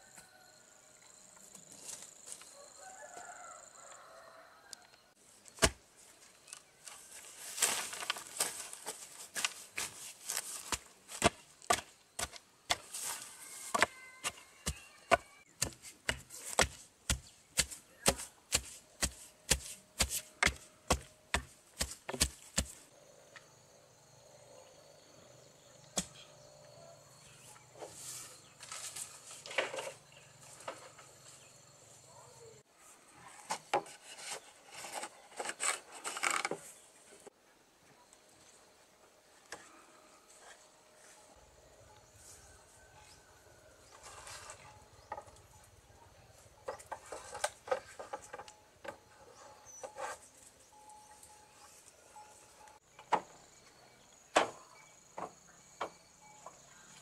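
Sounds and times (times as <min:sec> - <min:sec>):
hand tool chopping: 0:10.6 - 0:22.8.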